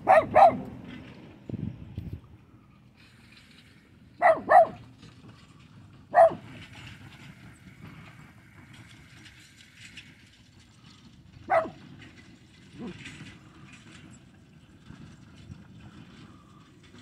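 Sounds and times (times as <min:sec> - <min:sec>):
dog barking: 0:00.0 - 0:00.7, 0:04.2 - 0:04.8, 0:06.1 - 0:06.5, 0:11.5 - 0:11.8.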